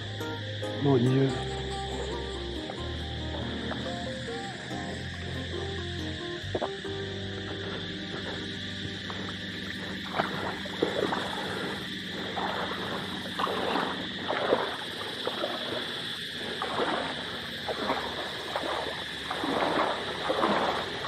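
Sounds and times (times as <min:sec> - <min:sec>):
water splashing against rocks: 0:09.0 - 0:21.0.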